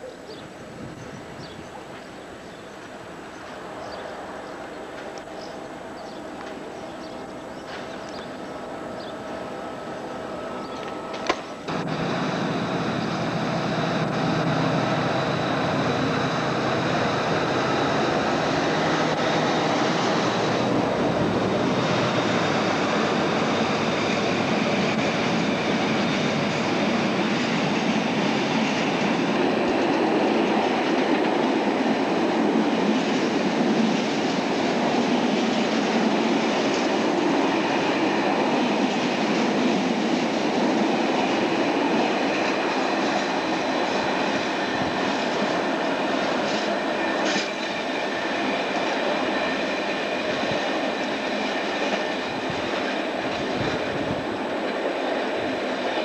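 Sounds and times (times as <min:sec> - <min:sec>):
diesel locomotive engine hum: 0:00.0 - 0:56.0
train wheels on rails: 0:00.8 - 0:56.0
click: 0:05.0 - 0:05.3.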